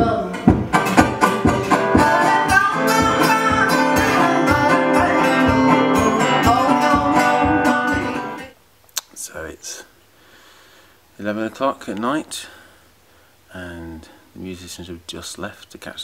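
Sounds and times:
acoustic guitars plucking: 0.0 - 8.6.

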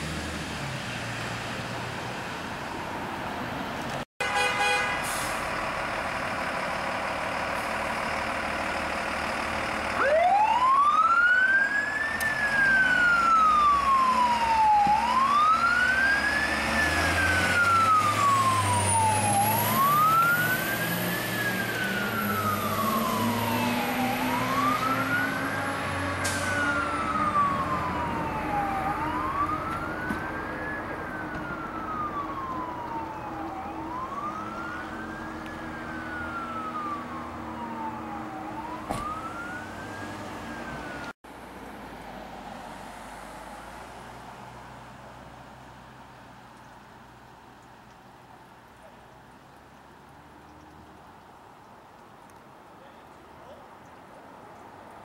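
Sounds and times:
truck engine rumble: 4.8 - 54.8
fire truck siren wailing: 7.8 - 41.2.

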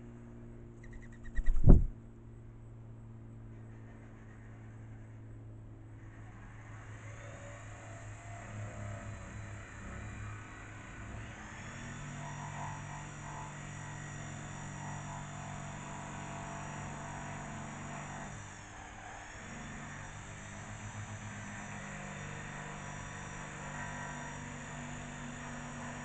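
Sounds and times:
low mechanical hum: 0.0 - 26.0
faint high whine: 0.6 - 13.0.

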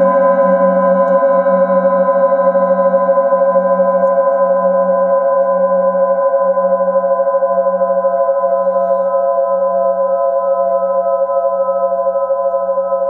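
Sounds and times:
metal singing bowl ringing: 0.0 - 13.0.

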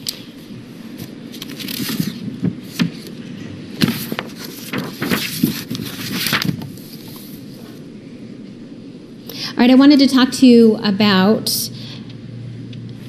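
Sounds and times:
paper rustling near microphone: 0.8 - 7.8.

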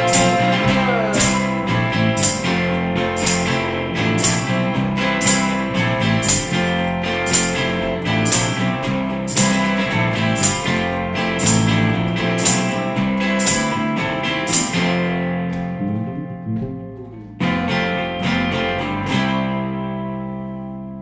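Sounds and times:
tambourine hits: 0.0 - 15.1
strummed guitar chord: 0.0 - 20.7
indie rock guitar and bass: 0.0 - 21.0.

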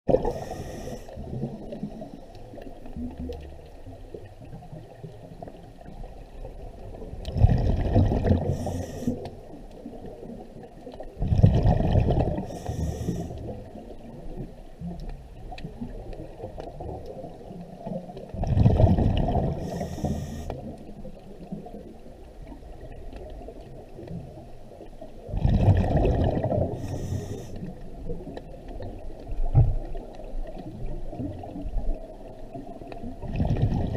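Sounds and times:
exhaled bubbles rushing: 0.1 - 8.8, 9.9 - 14.5, 15.6 - 19.8, 25.2 - 26.9, 28.0 - 33.9
low underwater rumble: 0.1 - 33.9.

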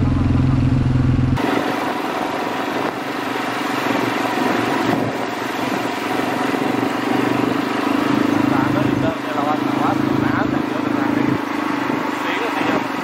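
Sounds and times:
quad bike engine running: 0.0 - 13.0
broad rushing noise: 1.4 - 13.0.

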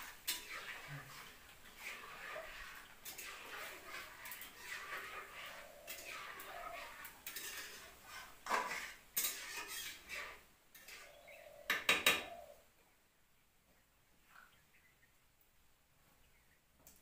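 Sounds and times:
metal spoon scraping a steel pan: 0.0 - 12.4.

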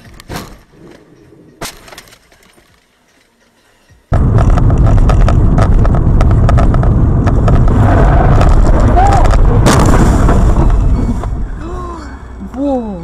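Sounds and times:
road and engine rumble: 0.0 - 13.0
sharp clicks and knocks: 4.2 - 9.8.

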